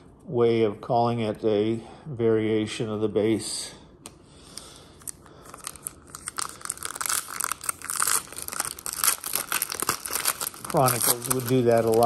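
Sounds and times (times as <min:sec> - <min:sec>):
foil wrapper crinkling: 0:05.0 - 0:12.0.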